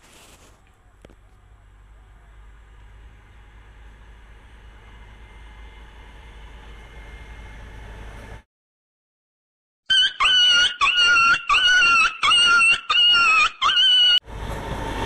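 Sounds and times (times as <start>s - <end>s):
train rumble: 0.0s - 8.4s, 14.2s - 15.0s.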